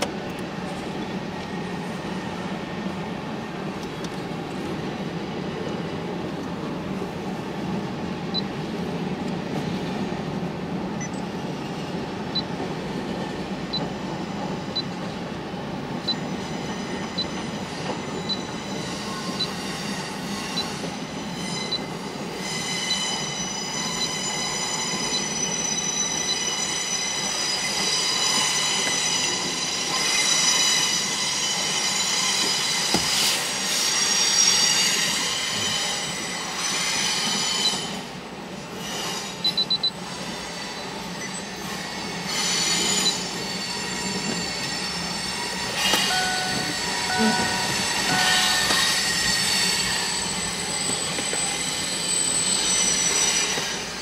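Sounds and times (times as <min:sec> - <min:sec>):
train wheels rumbling on rails: 0:00.0 - 0:54.0
high-pitched wheel squeal: 0:16.1 - 0:38.0, 0:38.9 - 0:54.0.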